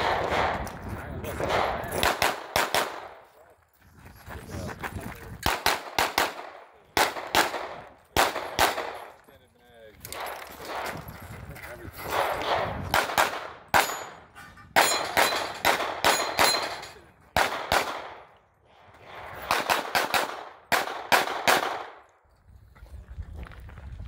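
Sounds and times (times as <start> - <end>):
handgun shots: 1.4 - 3.2, 12.1 - 14.2, 14.8 - 16.8, 17.4 - 18.2, 19.4 - 22.0.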